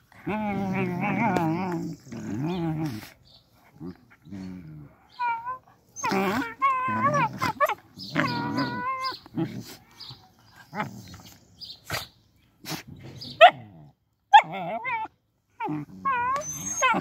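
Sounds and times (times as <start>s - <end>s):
puppy growling: 0.0s - 11.4s, 14.4s - 17.0s
puppies whining and yelping: 5.2s - 9.3s, 14.3s - 17.0s.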